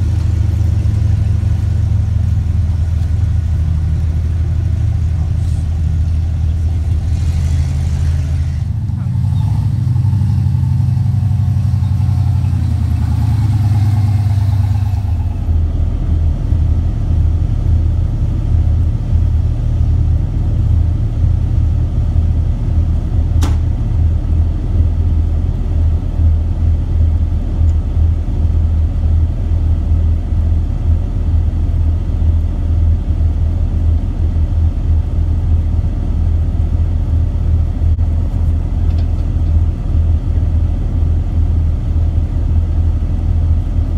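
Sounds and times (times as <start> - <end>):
jeep engine rumbling: 0.0 - 43.9
sharp click: 23.4 - 23.7.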